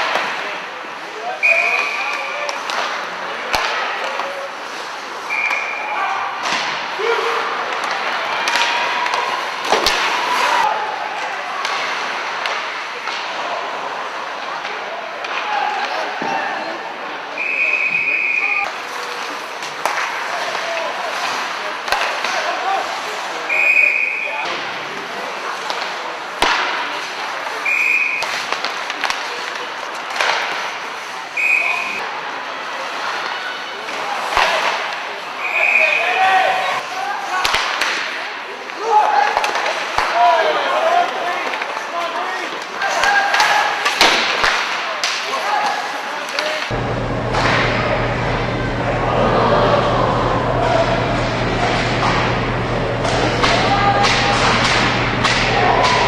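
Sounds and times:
hubbub of voices: 0.0s - 56.0s
ice rink hum: 0.0s - 56.0s
hockey sticks and puck knocks: 1.7s - 4.8s, 6.4s - 7.0s, 7.7s - 10.5s, 18.8s - 22.6s, 25.6s - 30.8s, 33.9s - 35.0s, 37.4s - 38.2s, 39.0s - 40.2s, 42.8s - 56.0s
hockey sticks and puck knocking: 7.7s - 10.2s, 46.3s - 56.0s
people shouting: 46.7s - 56.0s.

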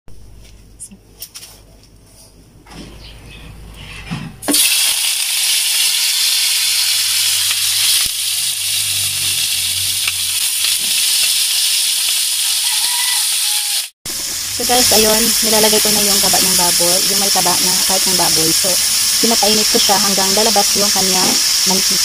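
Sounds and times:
pork fat sizzling in a wok: 4.5s - 22.0s.

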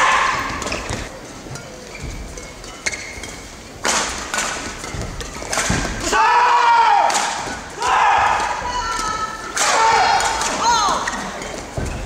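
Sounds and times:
shoes squeaking on court: 0.6s - 3.5s
racket hitting shuttlecock: 2.8s - 6.1s.

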